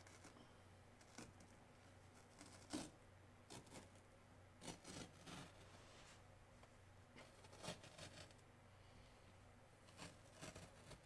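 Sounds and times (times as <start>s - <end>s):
low steady hum: 0.0s - 11.0s
carpet rustling and scraping: 4.6s - 6.3s.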